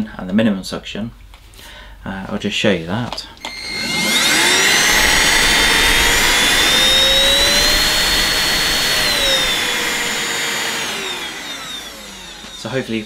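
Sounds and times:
cordless vacuum motor whining: 3.4s - 13.0s.

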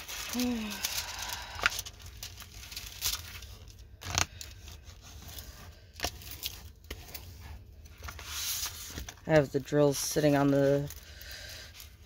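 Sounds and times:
loud plastic crackle: 0.0s - 7.3s
plastic film crinkling: 0.0s - 12.0s.

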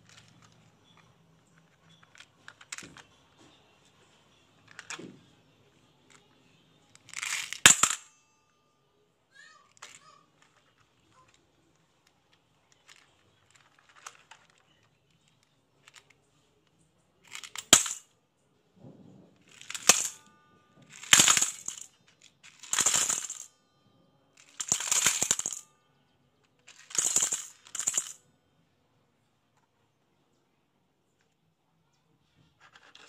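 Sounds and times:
marbles clattering into metal bowl: 7.0s - 8.1s, 17.3s - 18.1s, 19.5s - 23.5s, 24.4s - 25.7s, 26.7s - 28.2s.

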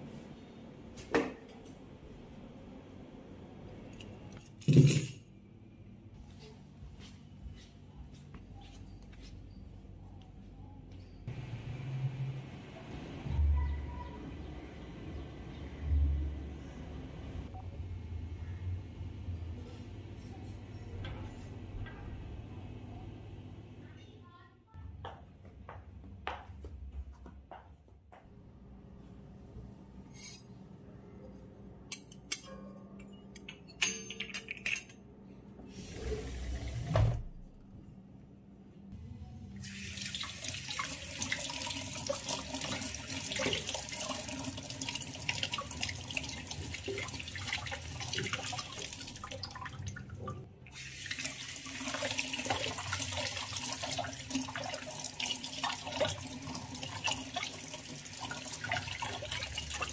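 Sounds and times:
tap water running into colander: 39.6s - 59.9s.

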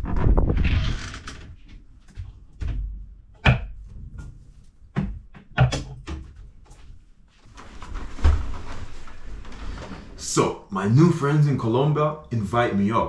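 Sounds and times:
clicks and knocks against wardrobe: 1.5s - 6.4s
clothes rustling: 6.4s - 10.3s.

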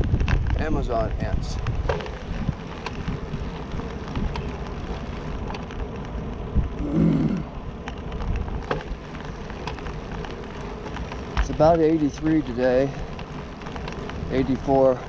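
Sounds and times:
bicycle tyre rumble: 0.0s - 15.0s
wind noise on microphone: 0.0s - 15.0s
falling hum: 1.6s - 15.0s.

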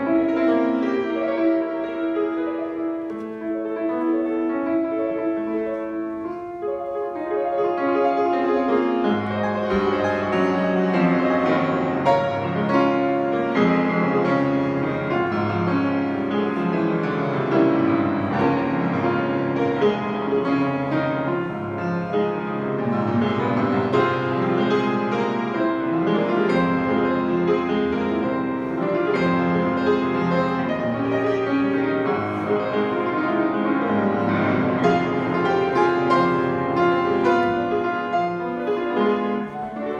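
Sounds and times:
solo grand piano: 0.0s - 39.9s.

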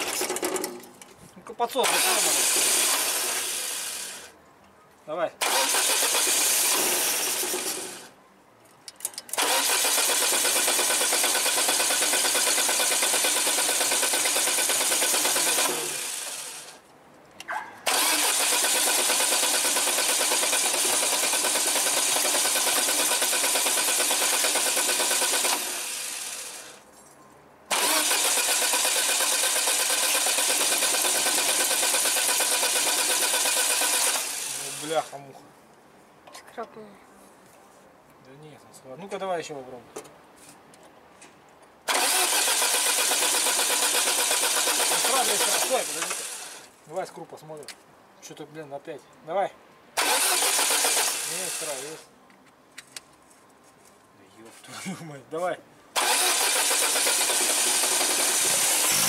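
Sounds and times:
car engine cranking on starter: 1.8s - 4.3s, 5.4s - 8.1s, 9.3s - 16.7s, 17.9s - 26.8s, 27.7s - 35.1s, 41.9s - 46.7s, 50.0s - 52.0s, 56.0s - 59.0s.

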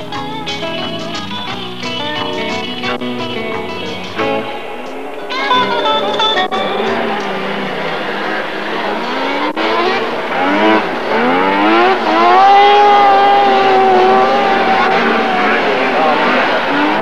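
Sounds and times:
snowmobile engines at full throttle: 6.6s - 17.0s.

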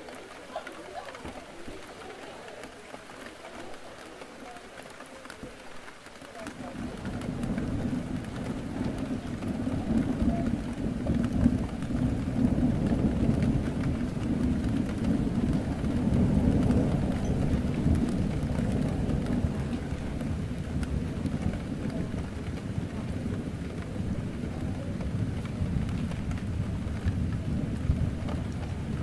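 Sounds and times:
rain against a window: 0.0s - 29.0s
deep rumble: 6.8s - 29.0s.

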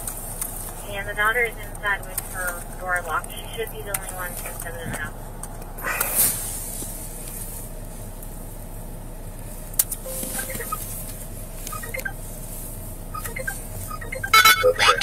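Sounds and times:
car cabin hum: 0.0s - 15.0s
faint short beeps: 10.1s - 10.9s, 13.2s - 15.0s.

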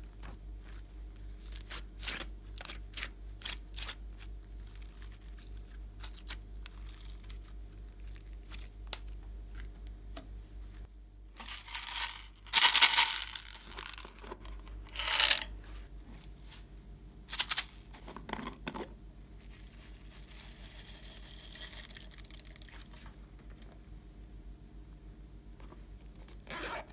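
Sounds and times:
beads pouring onto slime: 11.4s - 14.1s, 14.9s - 15.5s
plastic squeeze bottle crinkling: 11.4s - 15.5s.

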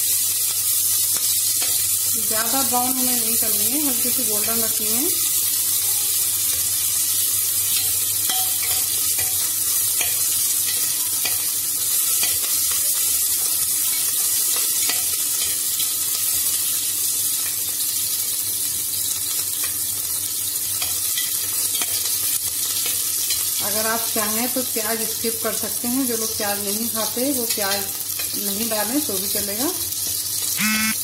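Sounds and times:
onions sizzling in oil: 0.0s - 31.0s.

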